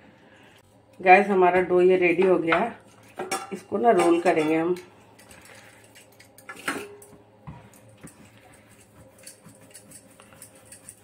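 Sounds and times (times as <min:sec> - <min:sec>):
dough handling in a bowl: 0:05.3 - 0:11.0.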